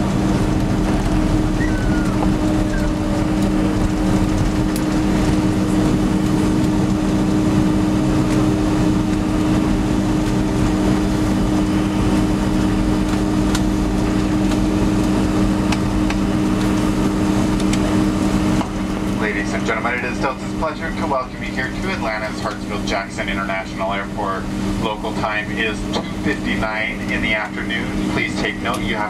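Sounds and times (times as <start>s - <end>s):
airplane cabin engine drone: 0.0s - 29.0s.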